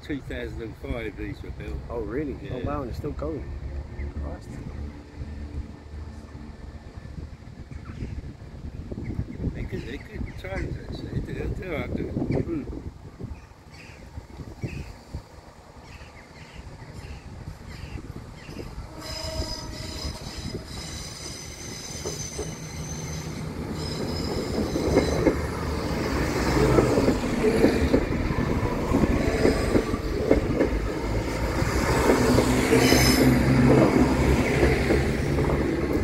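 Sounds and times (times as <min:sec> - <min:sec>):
diesel train passing: 0:00.0 - 0:10.4, 0:11.0 - 0:36.0
high-pitched squeal: 0:18.5 - 0:30.1, 0:31.0 - 0:33.6.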